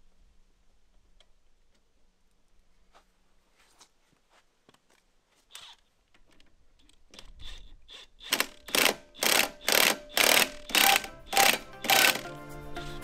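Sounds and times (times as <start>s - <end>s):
impact wrench hammering: 8.3s - 12.3s.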